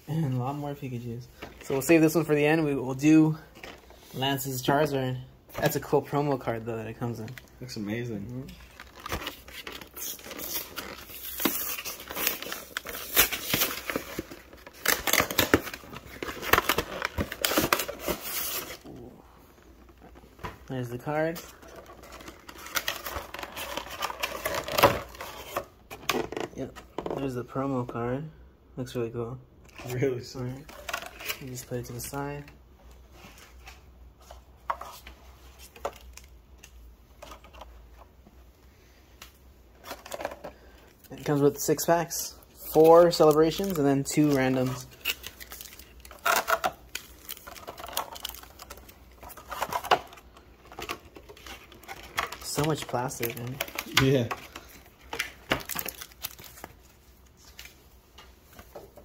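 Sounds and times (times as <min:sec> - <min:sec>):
plastic insert crinkling: 0:05.6 - 0:19.0, 0:19.6 - 0:26.3, 0:42.6 - 0:59.0.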